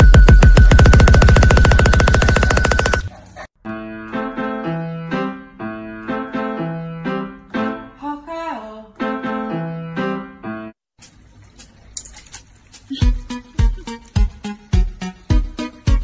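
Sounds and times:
keyboard melody over bass: 3.7s - 8.0s, 9.0s - 10.8s.

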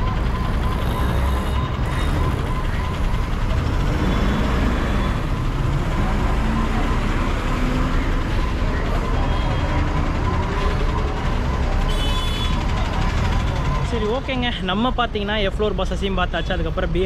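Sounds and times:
bus engine idling: 0.0s - 17.0s.

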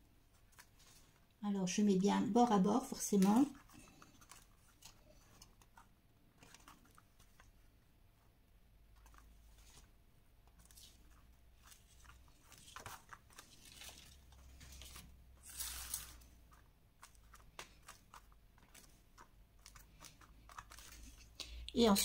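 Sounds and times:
paper rustling: 0.2s - 1.3s, 2.6s - 7.8s, 8.9s - 22.0s.

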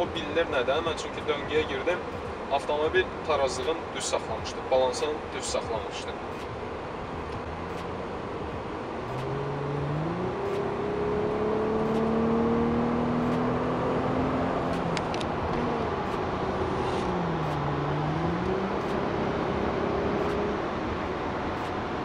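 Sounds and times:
car engine accelerating: 5.6s - 22.0s.

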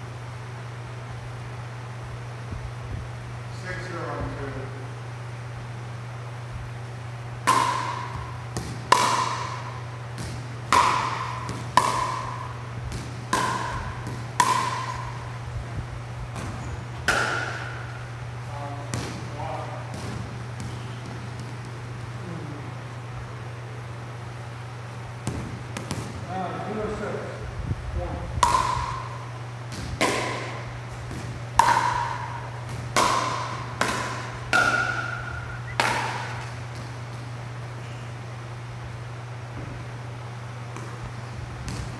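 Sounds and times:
steady low hum: 0.0s - 41.9s
paddles striking plastic ball: 7.5s - 15.2s, 28.4s - 29.1s, 29.7s - 37.0s
ball bouncing on court: 7.5s - 15.4s, 16.3s - 22.2s, 25.2s - 26.3s, 28.4s - 37.3s, 40.7s - 41.9s.

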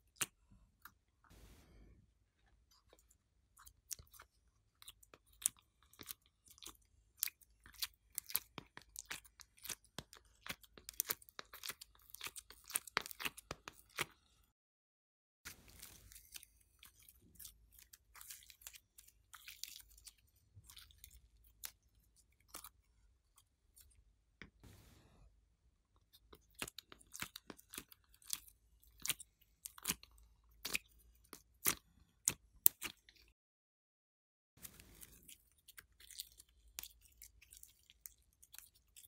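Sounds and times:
sticky clay clicking and crackling: 2.6s - 14.4s, 15.5s - 24.6s, 26.0s - 33.4s, 34.6s - 39.0s.

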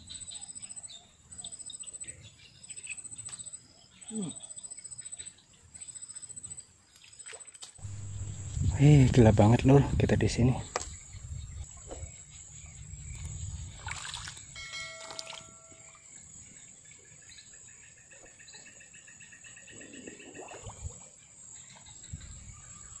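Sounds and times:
crickets and insects chirring: 0.0s - 23.0s
insect pulsed trill: 0.0s - 23.0s
bell-like chime: 14.5s - 16.2s.

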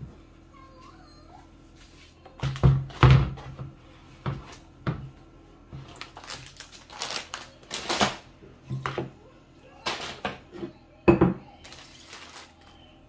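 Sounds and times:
plastic baskets knocking and clattering: 2.4s - 5.1s.

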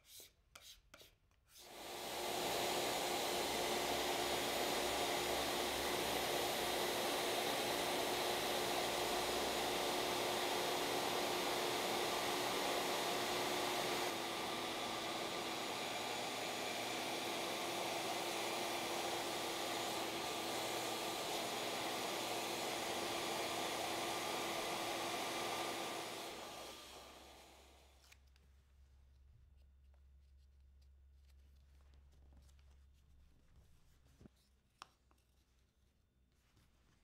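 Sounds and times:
router carving wood: 1.6s - 28.2s.

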